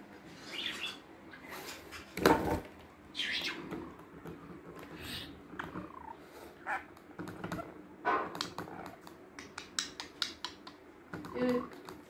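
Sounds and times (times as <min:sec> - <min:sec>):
budgerigar chirping and warbling: 0:00.4 - 0:01.0, 0:03.1 - 0:03.7.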